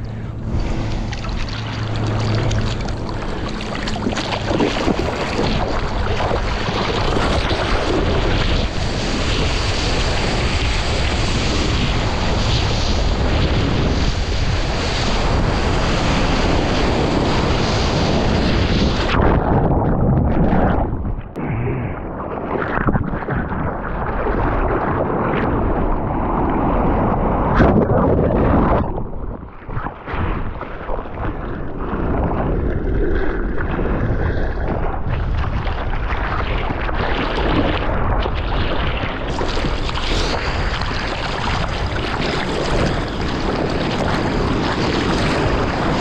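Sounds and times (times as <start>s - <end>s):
whitewater splashing and rushing: 0.0s - 46.0s
wind buffeting microphone: 0.0s - 46.0s.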